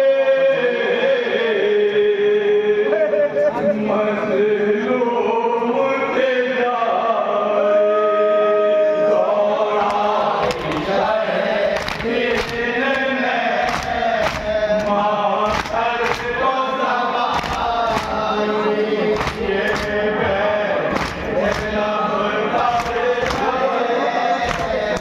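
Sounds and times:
men chanting in unison: 0:00.0 - 0:25.0
hands slapping chests: 0:09.8 - 0:11.0, 0:11.7 - 0:16.5, 0:17.3 - 0:18.4, 0:19.1 - 0:20.1, 0:20.9 - 0:22.0, 0:22.6 - 0:23.6, 0:24.4 - 0:25.0.

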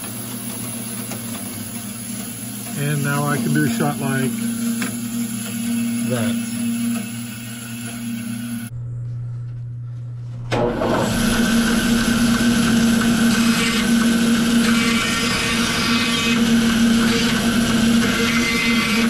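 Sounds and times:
bandsaw cutting wood: 0:02.7 - 0:07.0, 0:11.0 - 0:19.0
low steady hum: 0:02.8 - 0:10.9.

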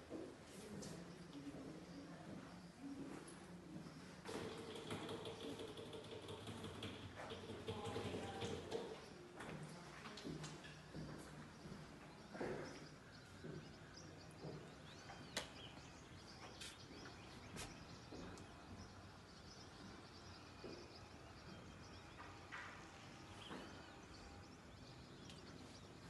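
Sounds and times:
distant bird chirps: 0:10.6 - 0:26.0.

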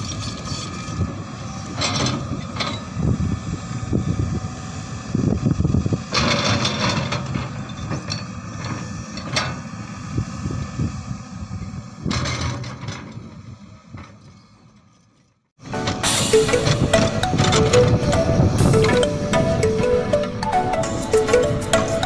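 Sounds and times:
excavator bucket scraping: 0:00.0 - 0:02.9, 0:06.1 - 0:09.6, 0:12.0 - 0:20.0
diesel engine under load: 0:00.0 - 0:22.0.

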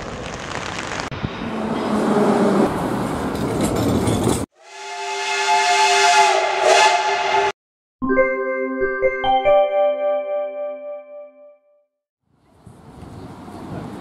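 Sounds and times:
steam locomotive whistle: 0:04.6 - 0:07.6.

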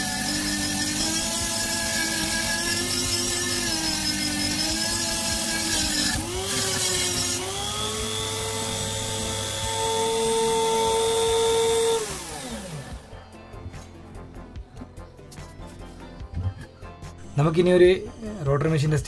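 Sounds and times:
sanding drum scratching wood: 0:00.0 - 0:12.5
rotary tool whining: 0:00.0 - 0:13.2.

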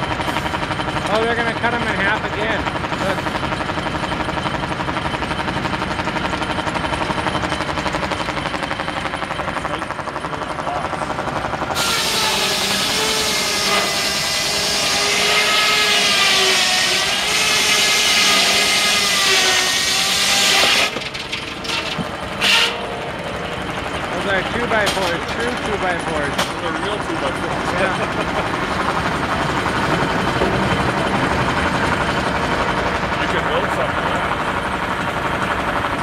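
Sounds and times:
steam engine driving saw: 0:09.5 - 0:34.4
circular saw cutting log: 0:11.5 - 0:32.5.

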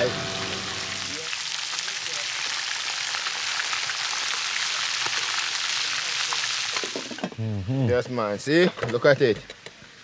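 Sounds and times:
fish frying in hot oil: 0:00.0 - 0:07.3.

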